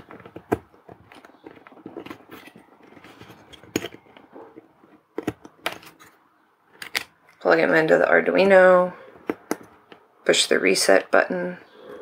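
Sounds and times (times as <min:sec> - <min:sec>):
circuit board clicks and scrapes: 0:00.0 - 0:06.2.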